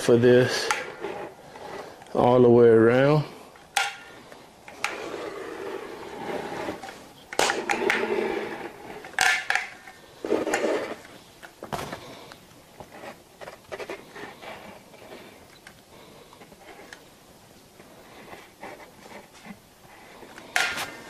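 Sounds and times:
rubbing and creaking: 0:00.0 - 0:02.5, 0:04.1 - 0:09.4.

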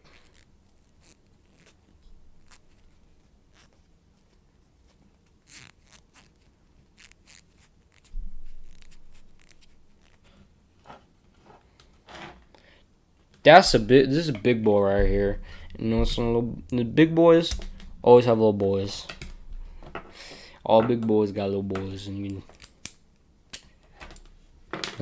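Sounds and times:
thump: 0:08.1 - 0:08.6.

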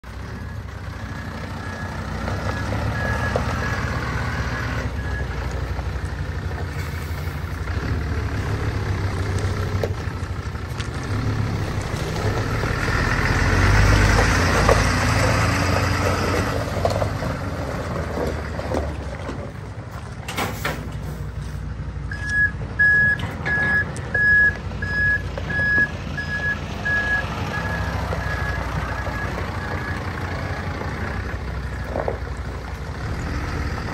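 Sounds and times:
truck diesel engine on gravel: 0:00.0 - 0:33.9
reversing alarm beeps: 0:22.1 - 0:30.0.

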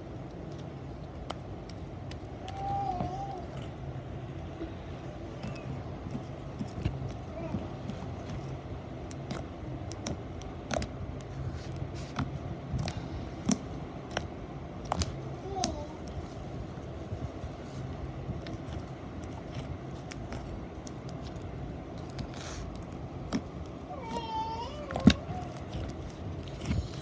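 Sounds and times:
low background hum: 0:00.0 - 0:27.0
slime squishing with clicks and pops: 0:08.9 - 0:11.3, 0:12.1 - 0:15.7.

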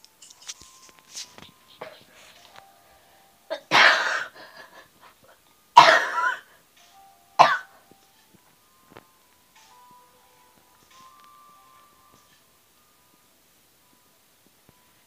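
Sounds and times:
person coughing: 0:03.5 - 0:04.9, 0:05.8 - 0:06.5, 0:07.4 - 0:07.8.

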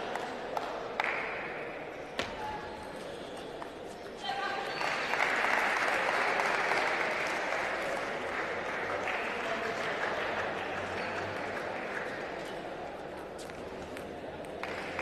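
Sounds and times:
audience applauding: 0:04.8 - 0:12.3.

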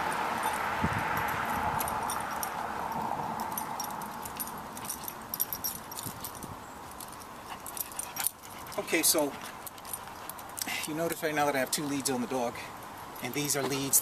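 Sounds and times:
passing traffic rush: 0:00.0 - 0:14.0
dog collar chain jingling: 0:00.3 - 0:14.0.

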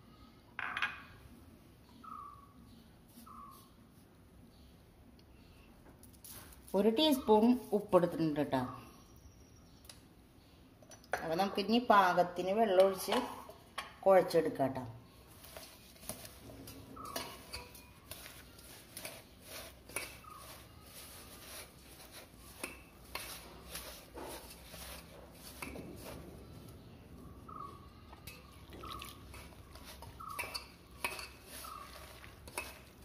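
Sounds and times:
rustling and squishing of onions: 0:06.0 - 0:08.3, 0:15.1 - 0:27.7, 0:28.3 - 0:33.0
clinks against metal bowl: 0:28.1 - 0:31.4.

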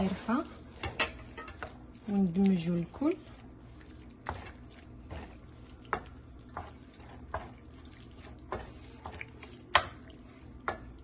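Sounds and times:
wet squelching of stirred meat: 0:00.0 - 0:11.0.

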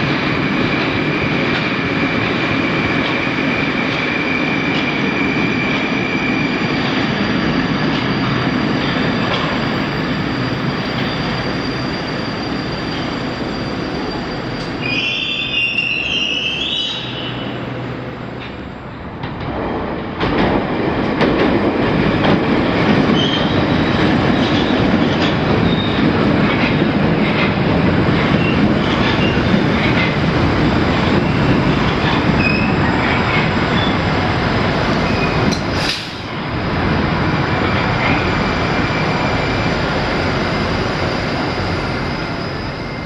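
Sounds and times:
train wheels running on track: 0:00.0 - 0:43.0
high wheel squeals: 0:03.4 - 0:18.2, 0:31.2 - 0:34.1, 0:37.7 - 0:43.0.

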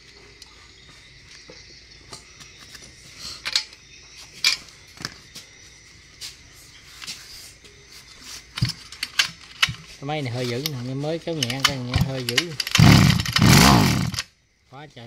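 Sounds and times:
metallic clicks of hand tools: 0:08.6 - 0:09.8, 0:10.6 - 0:14.2.

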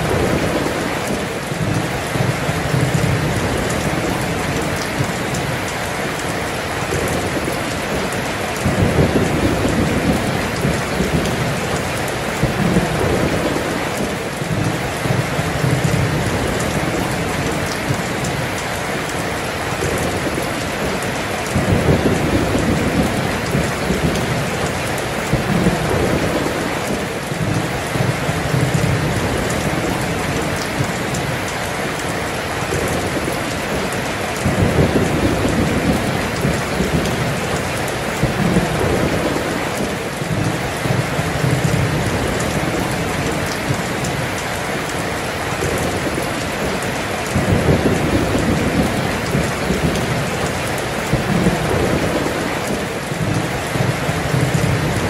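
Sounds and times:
rolling thunder: 0:00.0 - 0:05.6, 0:06.3 - 0:18.4, 0:19.7 - 0:31.4, 0:32.1 - 0:44.4, 0:45.6 - 0:55.0
heavy rain: 0:00.0 - 0:55.0.

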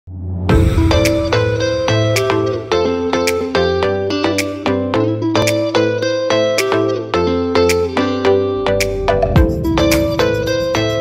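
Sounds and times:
sustained melody over low bass: 0:00.1 - 0:04.0.

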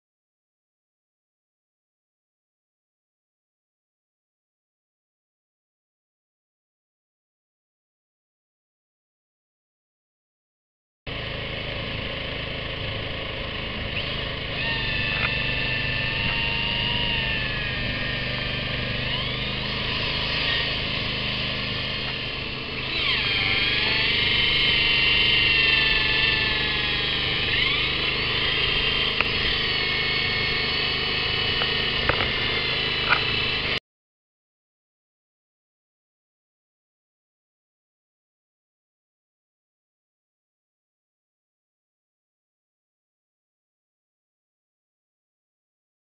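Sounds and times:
cordless drill boring into wood: 0:12.0 - 0:33.8.

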